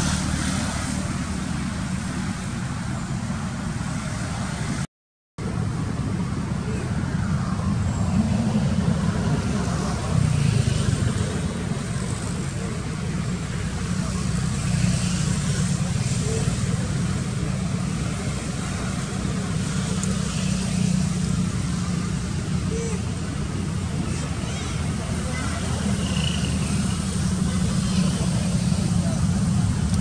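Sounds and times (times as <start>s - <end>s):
steady low rumble with hiss: 15.3s - 30.0s.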